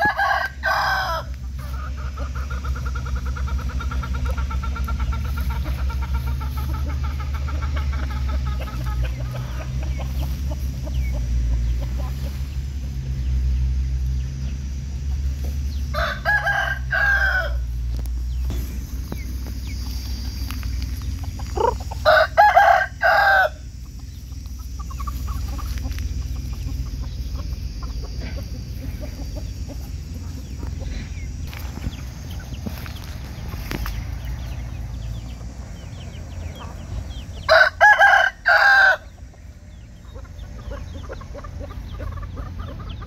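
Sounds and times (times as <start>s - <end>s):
rooster crowing: 0.0s - 3.2s, 15.7s - 17.8s, 21.4s - 23.8s, 37.3s - 39.2s
hens clucking: 0.0s - 43.0s.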